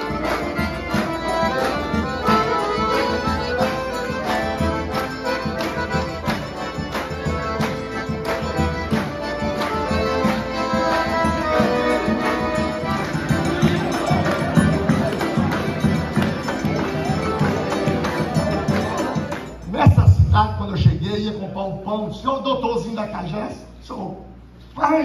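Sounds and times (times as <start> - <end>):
accordions playing a tune: 0.0 - 21.0.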